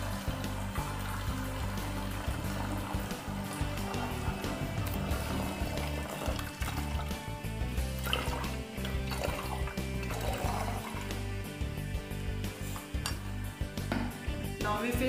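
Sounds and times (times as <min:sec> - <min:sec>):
liquid trickling and gurgling: 0:00.0 - 0:11.4
background music: 0:00.0 - 0:15.0.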